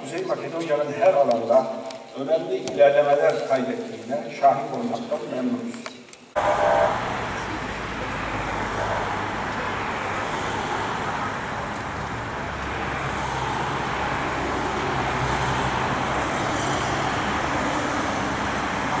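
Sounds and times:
cars driving past: 0:06.4 - 0:19.0.

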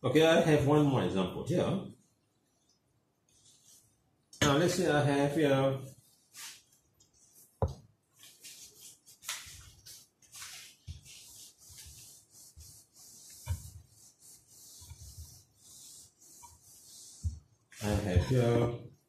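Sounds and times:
eraser rubbing on whiteboard: 0:05.9 - 0:07.6, 0:08.2 - 0:18.7.

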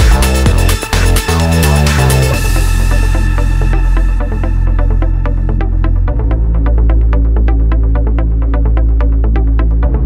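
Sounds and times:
electronic dance music: 0:00.0 - 0:05.0.

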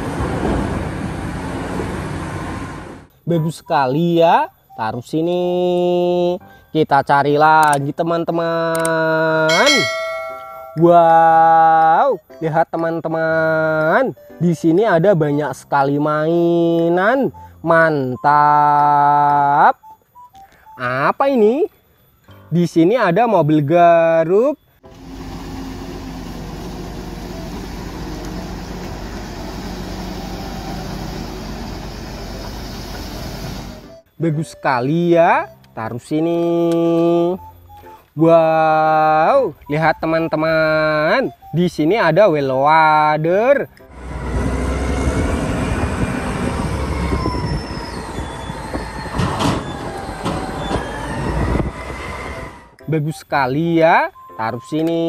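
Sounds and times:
excavator diesel engine running: 0:24.9 - 0:34.0
thin squealing tones: 0:46.9 - 0:51.2.

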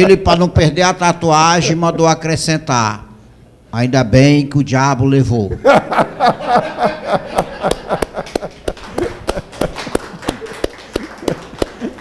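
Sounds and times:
man laughing: 0:05.5 - 0:12.0
hands clapping: 0:07.4 - 0:12.0.

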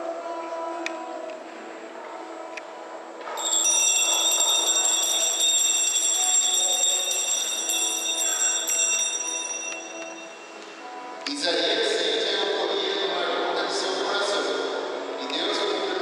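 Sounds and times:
soft background music: 0:00.0 - 0:16.0
bright bell chimes: 0:03.4 - 0:11.0.

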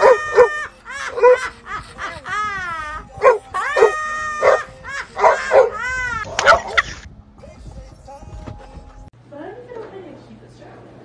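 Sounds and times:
dog yowling and howling: 0:00.0 - 0:01.7, 0:02.3 - 0:06.9.

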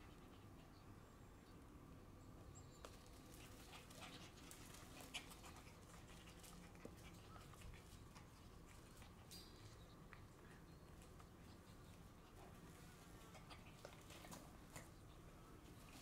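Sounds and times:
puppy paws scraping on gravel: 0:02.8 - 0:09.7.

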